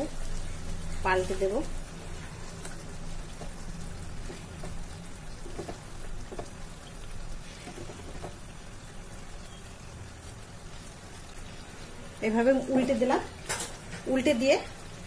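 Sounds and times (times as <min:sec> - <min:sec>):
gravy crackling and sputtering in pan: 0:00.0 - 0:15.0
wooden spatula scraping: 0:07.4 - 0:08.4.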